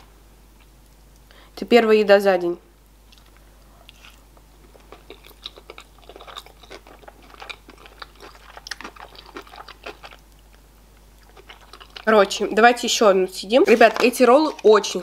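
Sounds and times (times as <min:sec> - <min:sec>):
chewing mouth clicks: 0:03.1 - 0:10.6, 0:11.2 - 0:12.5.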